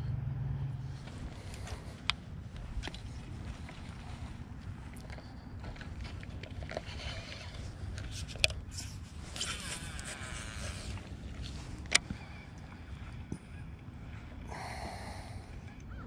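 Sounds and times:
wind rumble on microphone: 0.0 - 16.0
fishing reel whirring rasp: 6.7 - 11.2.

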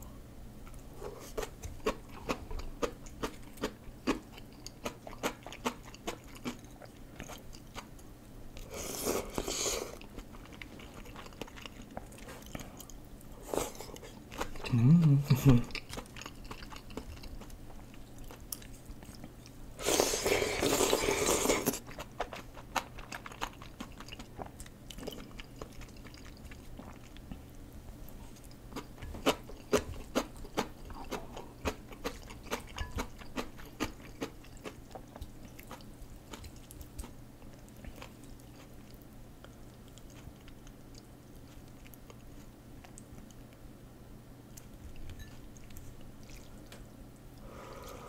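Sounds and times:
wet chewing: 0.8 - 14.7, 15.5 - 43.6, 44.5 - 47.5
person slurping noodles: 19.8 - 21.8.

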